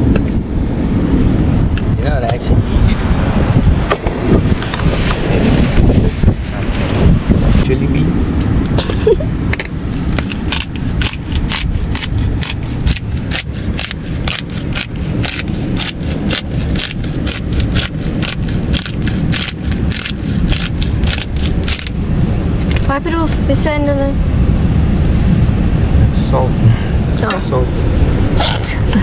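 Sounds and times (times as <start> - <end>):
low rumble: 0.0 - 29.0
pepper grinder grinding: 10.0 - 22.0.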